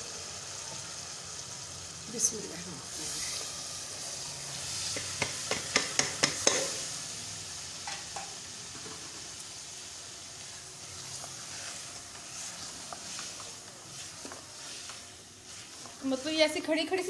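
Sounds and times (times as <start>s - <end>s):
masala sizzling: 0.0s - 17.0s
knocks on a pot: 5.0s - 6.7s.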